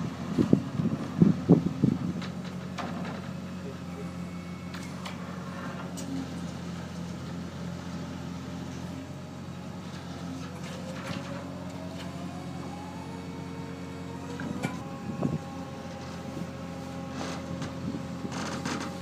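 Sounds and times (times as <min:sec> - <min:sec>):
engine drone: 0:00.0 - 0:19.0
hydraulic whine: 0:10.2 - 0:19.0.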